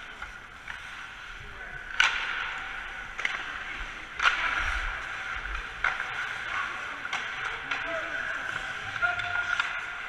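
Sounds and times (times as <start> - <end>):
hockey stick hitting puck: 0.0 - 10.0.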